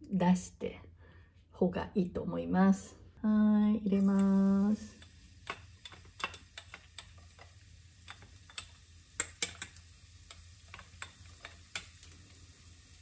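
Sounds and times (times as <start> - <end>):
garlic sizzling in oil: 3.9 - 13.0
small crackles and pops: 4.0 - 13.0.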